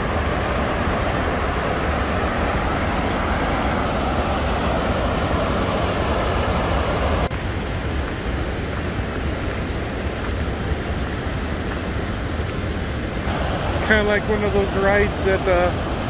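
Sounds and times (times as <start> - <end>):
deep water rumble: 0.0 - 16.0
rushing white water: 0.0 - 16.0.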